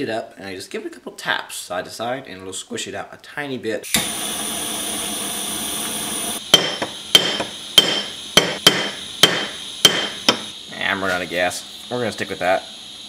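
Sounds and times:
gas torch hissing: 3.8s - 13.0s
hammer striking metal on anvil: 6.5s - 10.6s.

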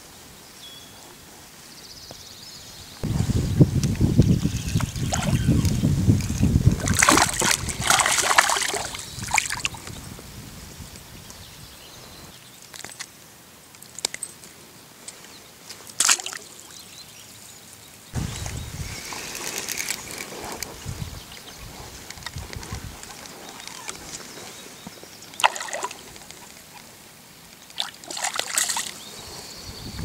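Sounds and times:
wind rumble on microphone: 2.9s - 12.3s, 18.2s - 23.3s, 29.2s - 30.0s
fish splashing in water: 4.8s - 5.6s, 6.4s - 9.8s, 16.0s - 16.4s, 25.3s - 26.3s, 27.7s - 29.0s.

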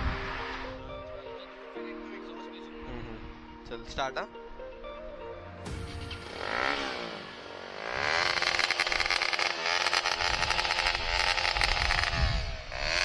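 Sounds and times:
motorcycle engine revving: 5.7s - 13.0s.

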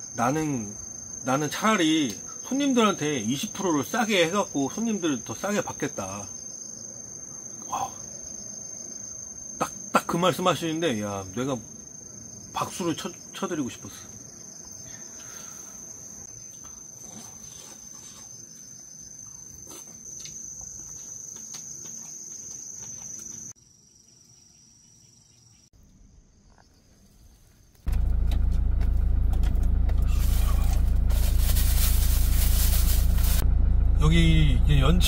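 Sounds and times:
crickets chirping: 0.0s - 35.0s
engine idling: 27.9s - 35.0s
plastic bag rustling: 30.0s - 33.4s.

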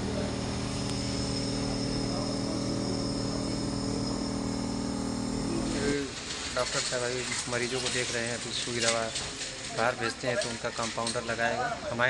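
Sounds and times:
motor hum: 0.0s - 6.1s.

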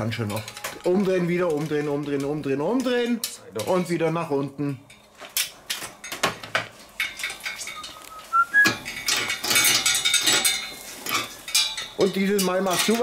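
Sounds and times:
metal chains and grate rattling: 0.0s - 13.0s
short rising whistle: 7.9s - 8.7s.

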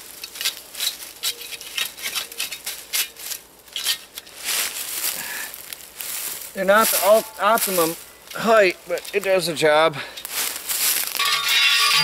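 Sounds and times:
chain-link fence rattling: 11.2s - 12.0s.

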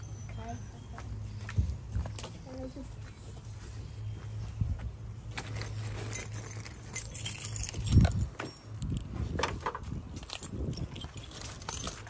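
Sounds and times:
metallic clinking and rattling: 5.3s - 12.0s.

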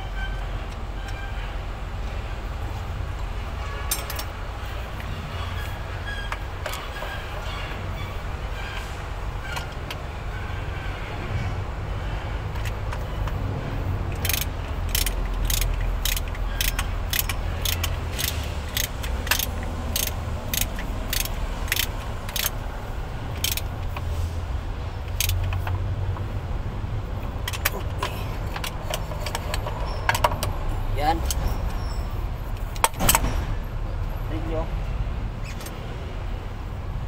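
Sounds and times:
hand tools clicking on metal: 14.1s - 22.6s, 23.3s - 24.1s, 25.0s - 25.8s, 27.4s - 30.6s.

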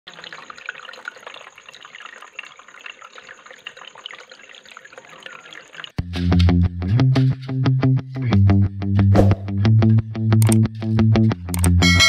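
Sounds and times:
fountain water trickling: 0.1s - 6.0s
small drips pattering: 0.1s - 6.0s.

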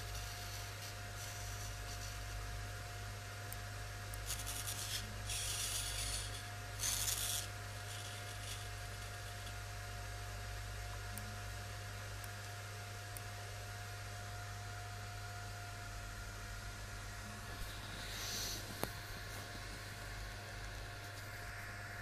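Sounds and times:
electrical hum: 0.0s - 22.0s
servo motors hissing: 17.8s - 18.8s.

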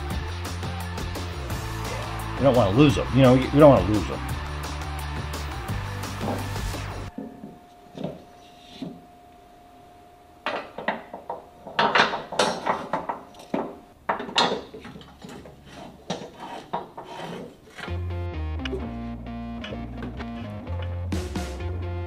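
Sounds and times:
metal parts and tools clanking: 10.4s - 18.0s.

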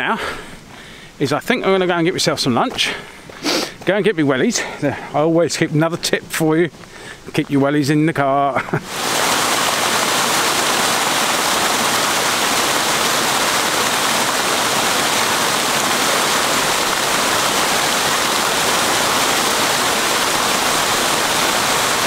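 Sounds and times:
water rushing over small waterfall: 8.8s - 22.0s.

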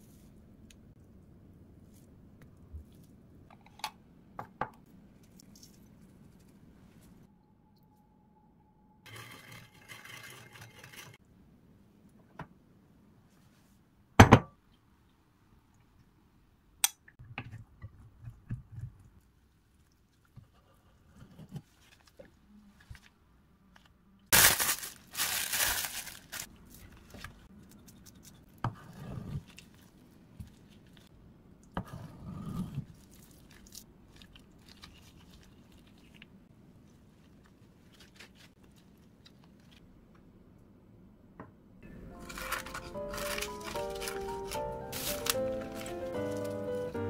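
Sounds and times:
plastic bag crinkling: 24.3s - 26.8s, 42.2s - 46.9s.

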